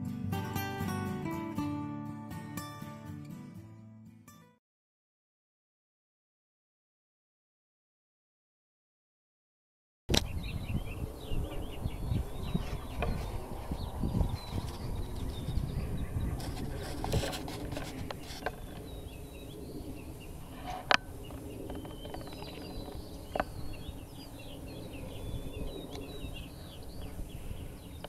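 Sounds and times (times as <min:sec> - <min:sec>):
small birds chirping: 0:10.1 - 0:28.0.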